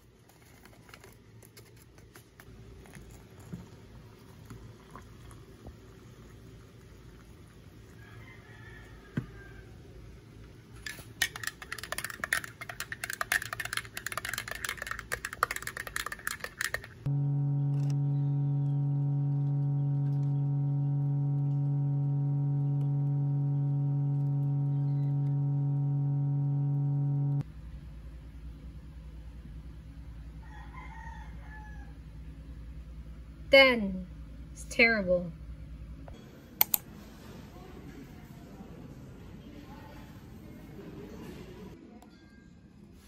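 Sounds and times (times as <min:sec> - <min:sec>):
laptop keyboard typing: 0:10.9 - 0:17.1
loud low hum: 0:17.1 - 0:30.4.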